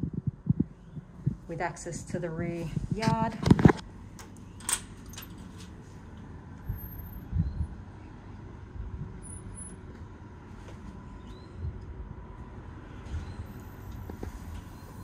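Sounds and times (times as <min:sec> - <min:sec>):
dull low thumps: 0:00.0 - 0:03.3
low background rumble: 0:00.0 - 0:15.0.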